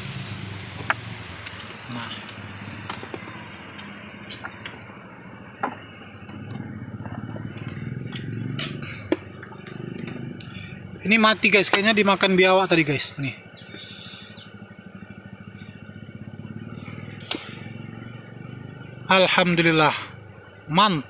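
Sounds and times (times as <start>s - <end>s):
water splashing and sloshing: 6.5s - 10.9s.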